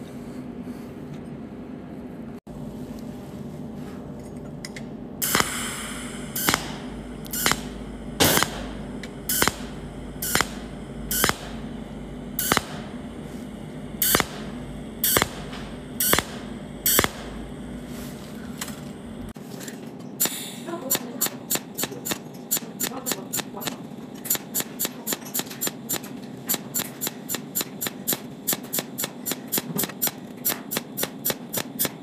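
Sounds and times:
steady hum: 0:00.0 - 0:32.0
welding arc cracks: 0:05.2 - 0:11.8, 0:12.4 - 0:13.0, 0:14.0 - 0:17.4, 0:20.2 - 0:32.0.

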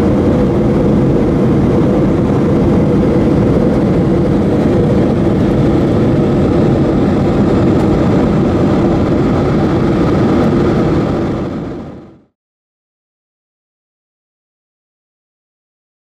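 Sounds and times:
rushing airflow: 0:00.0 - 0:12.3
jet engine drone: 0:00.0 - 0:12.4.

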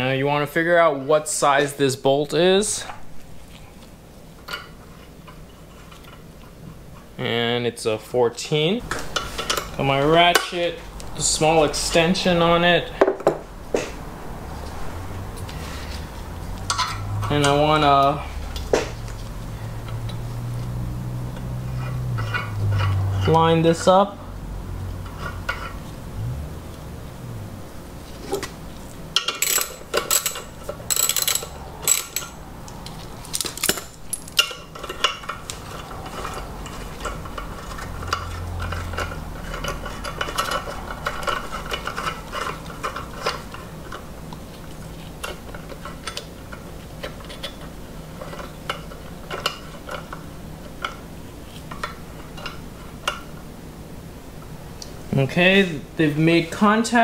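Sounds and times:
metal tool clinking: 0:29.2 - 0:32.4, 0:33.2 - 0:35.4.

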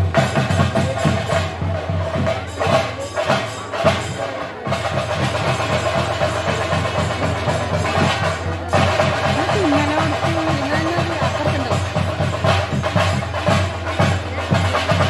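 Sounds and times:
drum ensemble playing fast beat: 0:00.0 - 0:15.0.

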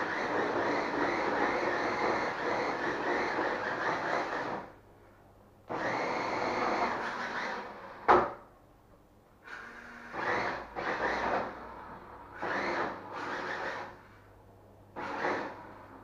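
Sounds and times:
toy car motor whirring: 0:00.0 - 0:04.7, 0:06.8 - 0:07.6, 0:12.4 - 0:14.0.

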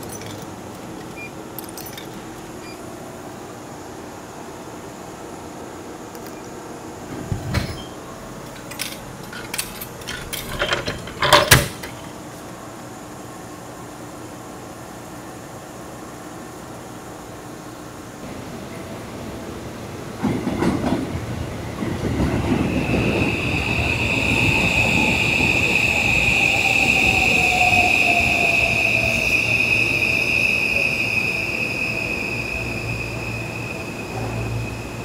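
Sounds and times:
high-pitched wheel squeal: 0:22.5 - 0:35.0.

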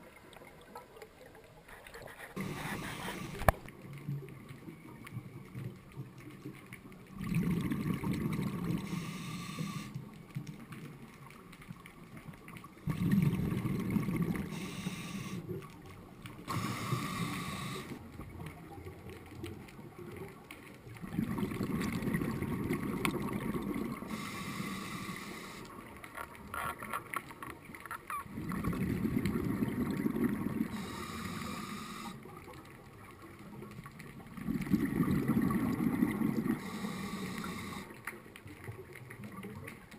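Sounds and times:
exhaled bubbles gurgling underwater: 0:00.0 - 0:39.9
regulator inhalation hiss: 0:02.4 - 0:03.7, 0:08.8 - 0:10.0, 0:14.5 - 0:15.5, 0:16.5 - 0:18.0, 0:24.0 - 0:25.7, 0:30.7 - 0:32.2, 0:36.6 - 0:37.9.

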